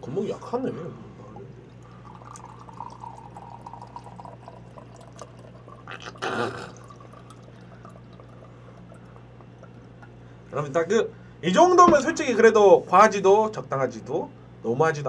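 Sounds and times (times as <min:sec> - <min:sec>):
liquid trickling from a bottle: 0:01.6 - 0:10.2.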